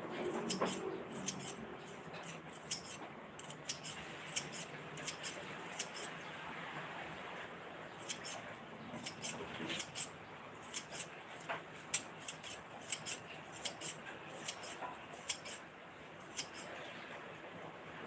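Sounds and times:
scissors snipping: 0:00.4 - 0:01.6, 0:02.2 - 0:06.1, 0:09.0 - 0:11.1, 0:11.9 - 0:15.6, 0:16.3 - 0:16.7.

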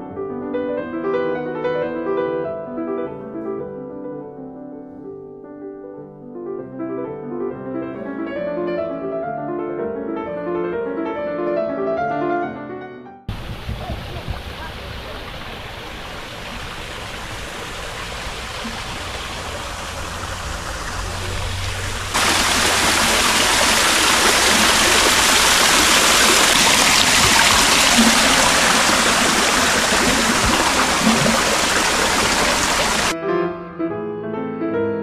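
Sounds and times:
water feature falling water: 0:13.3 - 0:33.2.

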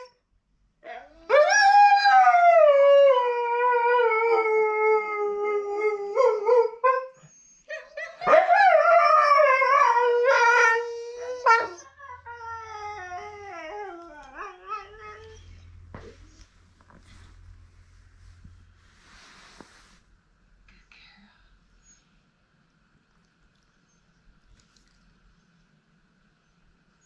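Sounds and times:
dog howling: 0:08.2 - 0:15.4.

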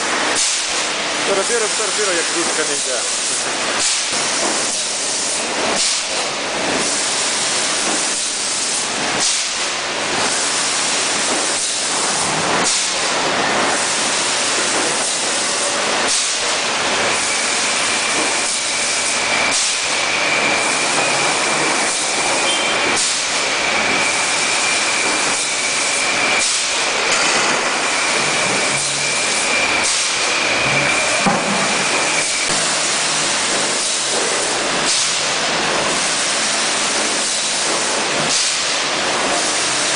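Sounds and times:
bottling machine hissing: 0:00.0 - 0:39.9
high-pitched whine: 0:17.1 - 0:32.6.

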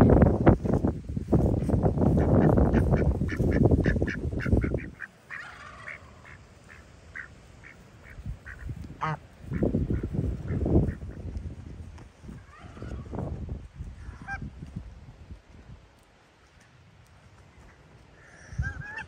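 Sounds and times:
wind rumbling on microphone: 0:00.0 - 0:19.0
ducks quacking softly: 0:02.0 - 0:11.3, 0:17.5 - 0:19.0.

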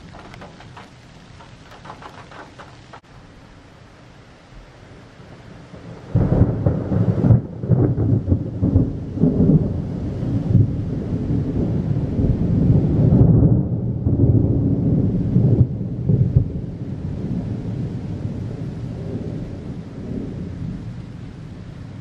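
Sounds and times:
rolling thunder rumble: 0:00.0 - 0:03.0, 0:05.7 - 0:22.0
thunder clap: 0:00.0 - 0:03.0.

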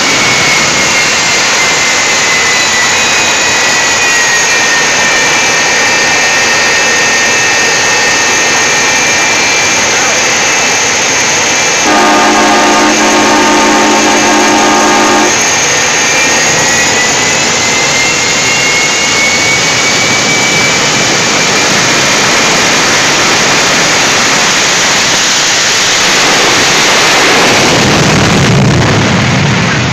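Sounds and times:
steady pitched tone: 0:00.0 - 0:20.6
faint whine rising in pitch: 0:00.0 - 0:26.2
jet engine roaring: 0:00.0 - 0:29.9.

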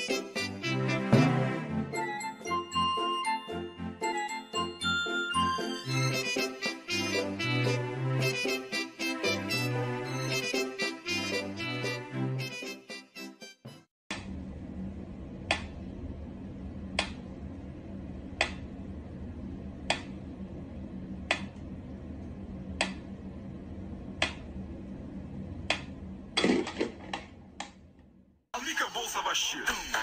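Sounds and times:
steady low hum: 0:14.1 - 0:28.5.

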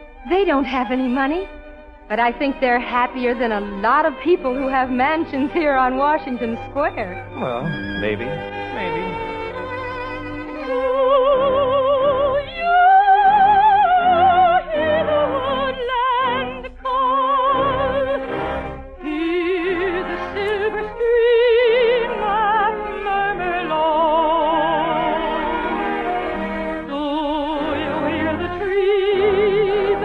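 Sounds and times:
orchestral accompaniment: 0:00.0 - 0:30.0
operatic soprano singing: 0:10.6 - 0:18.4, 0:19.0 - 0:30.0.

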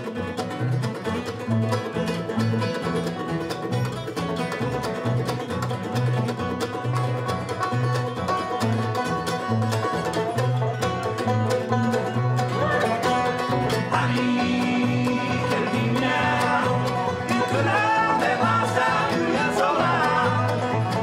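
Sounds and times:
acoustic guitar: 0:00.0 - 0:21.0
banjo picking: 0:00.0 - 0:21.0
mandolin: 0:00.0 - 0:21.0
upright bass: 0:00.0 - 0:21.0.

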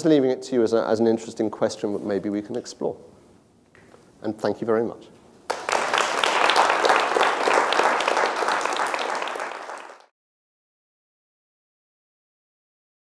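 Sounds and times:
audience applauding: 0:05.5 - 0:10.1.

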